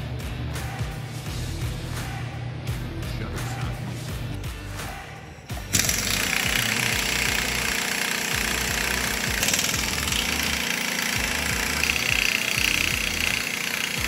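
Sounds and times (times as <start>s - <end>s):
pneumatic impact wrench rattling: 5.7s - 14.0s.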